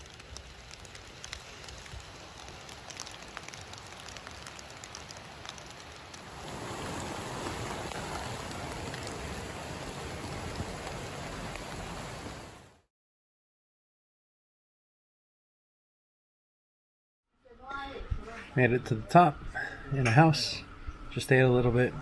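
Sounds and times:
dense steady water noise: 0.0s - 12.8s
rain on vegetation: 0.0s - 12.9s.

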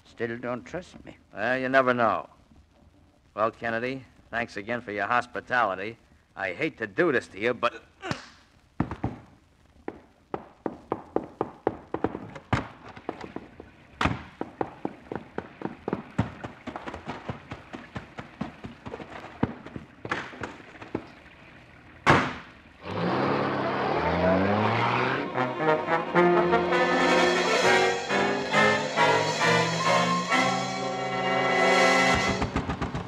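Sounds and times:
short knocks and thumps: 8.8s - 21.2s
brass music bridge: 22.8s - 32.8s
loud bang: 26.7s - 33.0s.

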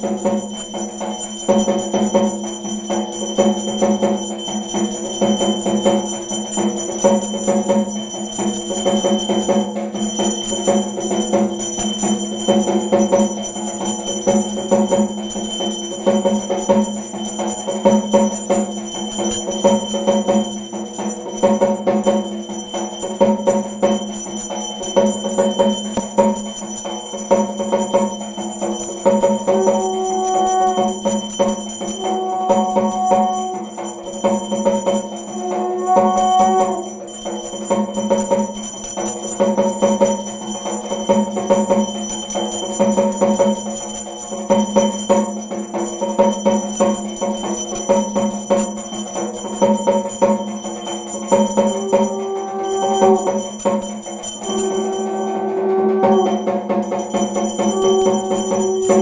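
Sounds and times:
bells and jingles ringing: 0.0s - 59.0s
steady drumming: 0.0s - 59.0s
held horn-like tones: 29.1s - 37.3s, 51.0s - 59.0s.

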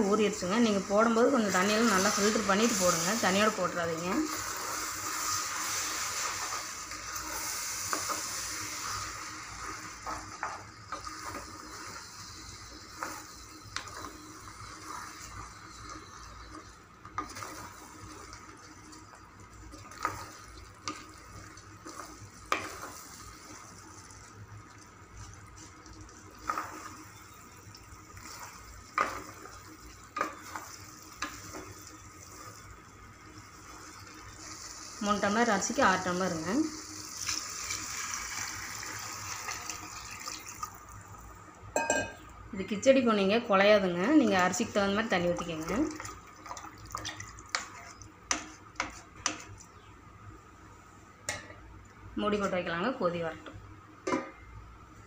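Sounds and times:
masala sizzling: 0.0s - 55.0s
spatula scraping a pot: 9.6s - 18.5s.

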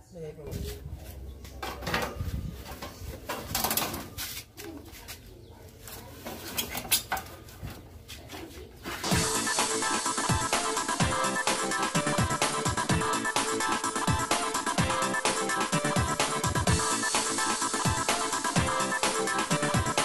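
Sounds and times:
sheet metal clanks and knocks: 1.6s - 4.1s
background music: 9.0s - 20.0s.

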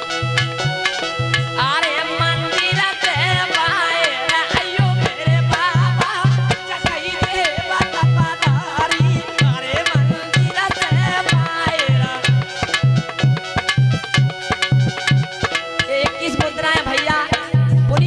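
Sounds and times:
harmonium held notes: 0.0s - 18.0s
man singing: 1.8s - 12.7s.

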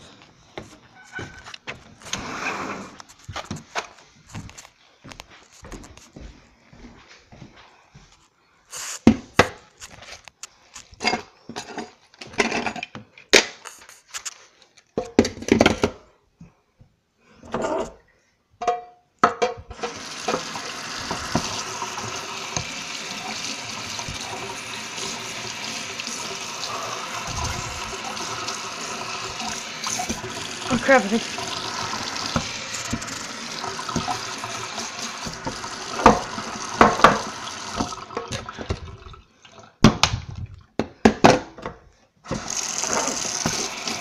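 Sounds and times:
tap running into steel sink: 19.7s - 22.8s, 31.5s - 38.5s
knocks and thumps: 27.3s - 27.9s.

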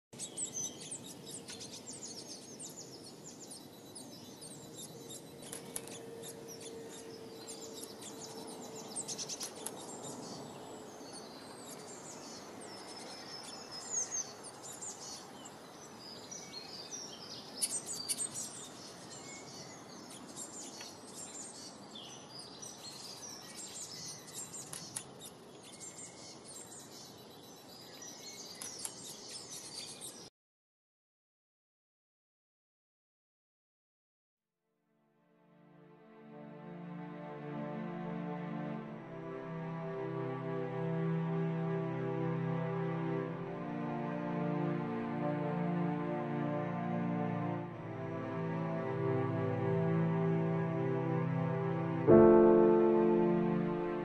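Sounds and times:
songbirds chirping: 0.2s - 30.3s, 35.8s - 54.0s.

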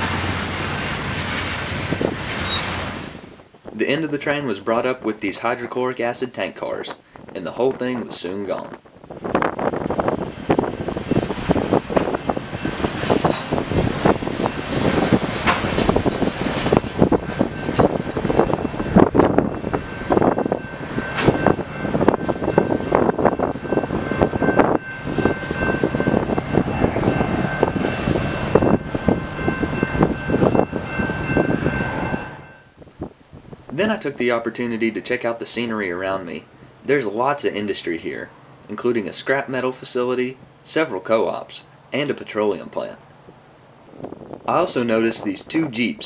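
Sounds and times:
train wheels clattering on rails: 0.0s - 3.5s, 9.4s - 32.2s
high steady ringing tone: 17.0s - 32.8s.

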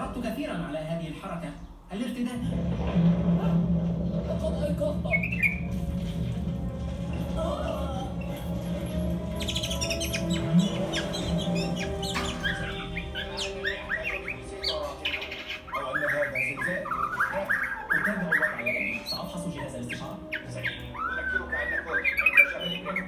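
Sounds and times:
bird singing whistled notes: 5.0s - 5.8s, 7.6s - 23.0s.

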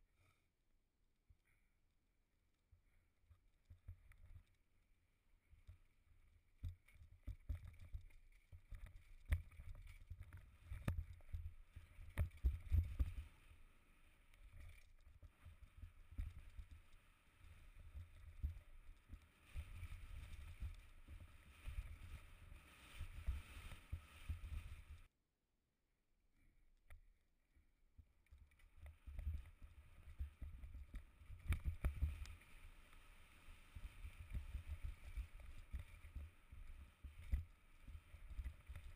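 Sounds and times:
wind rumble on microphone: 7.2s - 13.7s, 14.4s - 25.1s, 28.8s - 38.9s.

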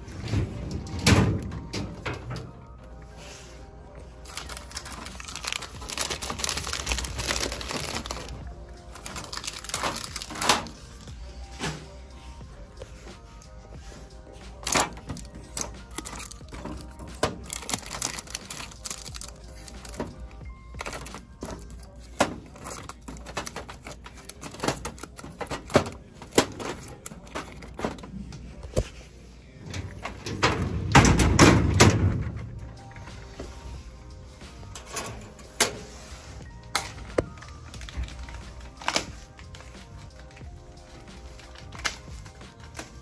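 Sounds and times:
background music: 0.0s - 43.0s
plastic snack bags crinkling: 4.2s - 11.1s, 14.5s - 28.1s, 36.8s - 43.0s.

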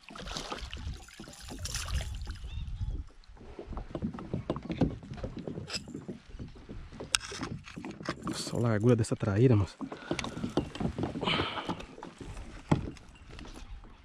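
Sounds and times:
water splashing: 0.0s - 8.7s
knocks and taps on a kayak: 3.7s - 8.5s, 9.7s - 13.1s.

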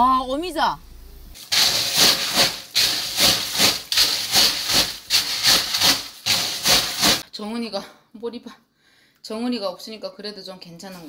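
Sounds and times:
snail shells scraping in a steel bowl: 1.4s - 7.2s.

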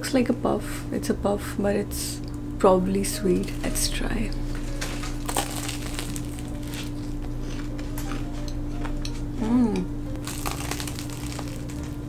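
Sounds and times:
low hum: 0.0s - 12.0s
pastry crust crackling when chewed: 4.4s - 9.0s, 10.2s - 12.0s
person humming mmm: 9.2s - 10.2s.

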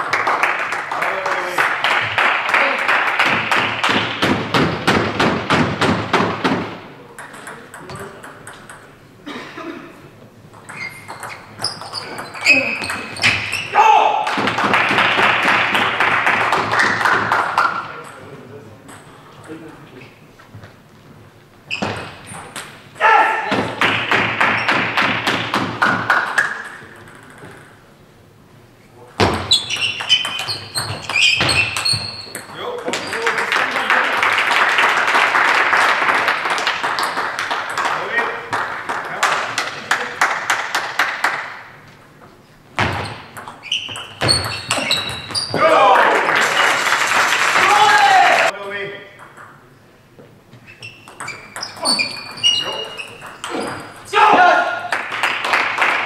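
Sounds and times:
spectators clapping in rhythm: 0.0s - 4.6s, 14.3s - 17.7s, 23.7s - 26.6s, 33.2s - 41.7s, 45.9s - 48.6s, 54.9s - 56.0s
table tennis ball bouncing: 3.2s - 9.0s, 10.5s - 13.5s, 21.8s - 27.8s, 29.2s - 33.2s, 42.8s - 45.6s, 49.2s - 49.7s, 50.9s - 54.1s
short high squeaks: 10.7s - 13.8s, 29.5s - 33.2s, 43.0s - 45.6s, 50.6s - 54.0s.

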